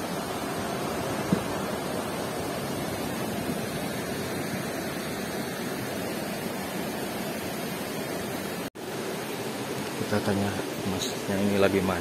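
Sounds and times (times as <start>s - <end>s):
river water rushing over rocks: 0.0s - 12.0s.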